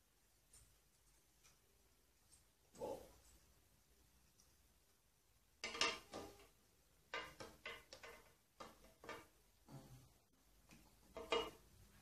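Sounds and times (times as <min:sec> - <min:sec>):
plastic clicks and clacks: 0:07.1 - 0:09.3.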